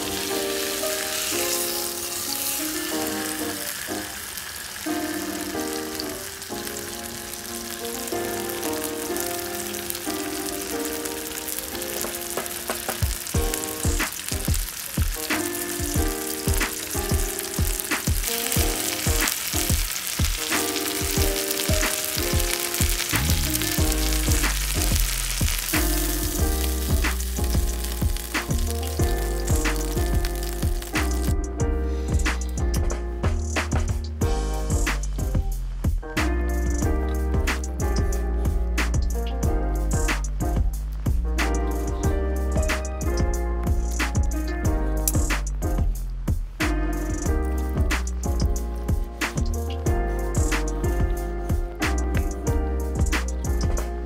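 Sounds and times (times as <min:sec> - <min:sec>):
steak sizzling on a barbecue: 0:00.0 - 0:35.7, 0:36.5 - 0:54.0
background music: 0:00.0 - 0:54.0
drum beats: 0:11.8 - 0:54.0
deep bass line: 0:23.1 - 0:54.0.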